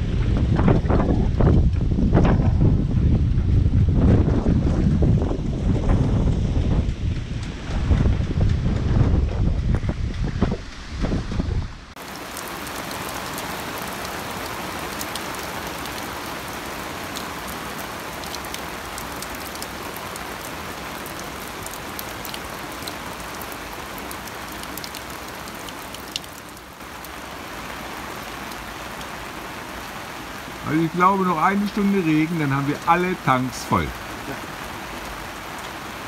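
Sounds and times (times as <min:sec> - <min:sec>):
heavy rain on water: 0:00.0 - 0:03.2, 0:11.9 - 0:36.0
rain pattering on canvas: 0:11.9 - 0:36.0.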